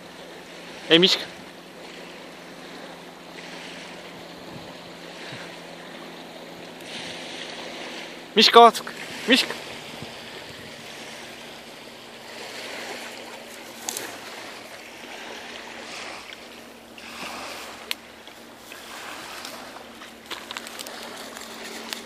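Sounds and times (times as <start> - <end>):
faint steady hum: 0.0 - 22.0
twig snaps: 13.8 - 14.1
footsteps through dry grass: 18.4 - 22.0.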